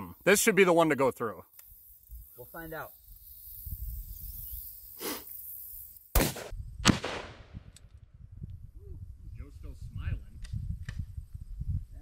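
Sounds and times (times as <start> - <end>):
rifle shots echoing: 6.2 - 7.6.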